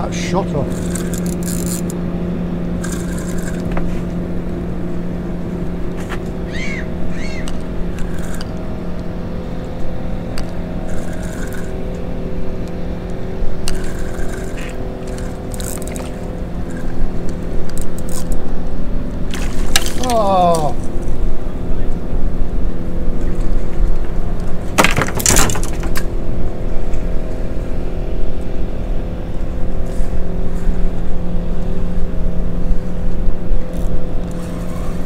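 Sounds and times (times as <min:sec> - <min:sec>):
outboard motor idling: 0:00.0 - 0:35.0
short rising chirps: 0:06.5 - 0:07.6.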